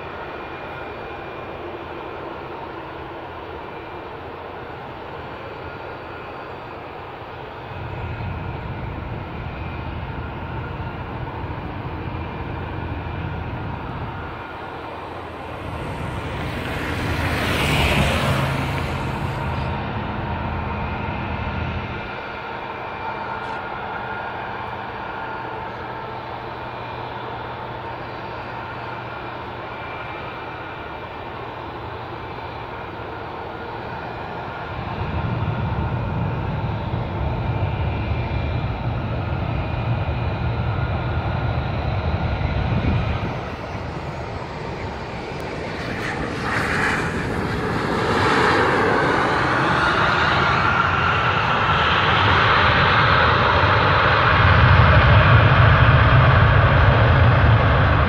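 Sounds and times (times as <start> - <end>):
jet engine whine: 0.0 - 58.0
reverse thrust roar: 12.5 - 22.3, 41.5 - 58.0.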